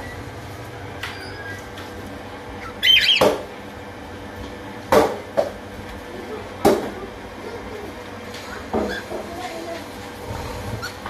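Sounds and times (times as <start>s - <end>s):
birds chattering: 2.4s - 3.6s
bird squawk: 2.6s - 3.4s.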